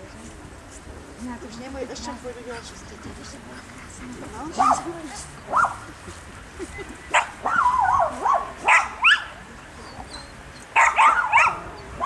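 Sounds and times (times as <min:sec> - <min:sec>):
dog yipping and whining: 0:07.2 - 0:12.0.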